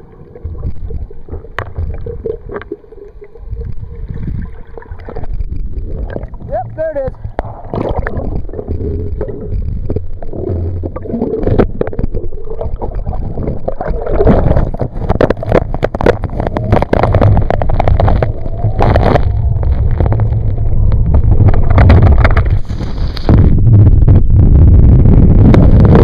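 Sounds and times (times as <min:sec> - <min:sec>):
water rushing and splashing: 0:00.0 - 0:23.3
deep rumble: 0:00.0 - 0:26.0.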